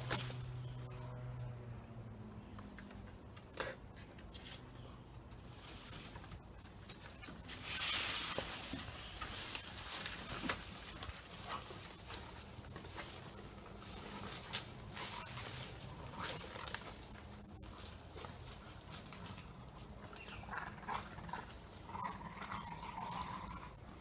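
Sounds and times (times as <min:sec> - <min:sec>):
dry palm frond rustling on grass: 0:00.0 - 0:00.6, 0:05.4 - 0:06.6, 0:07.2 - 0:21.9.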